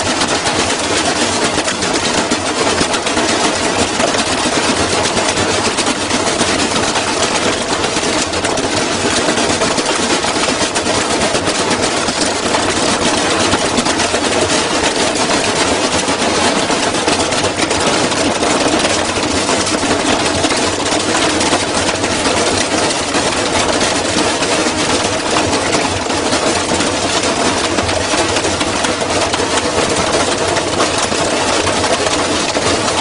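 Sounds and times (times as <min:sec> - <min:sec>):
metal panels rattling and knocking: 0:00.0 - 0:33.0
unbalanced washing machine spinning: 0:00.0 - 0:33.0.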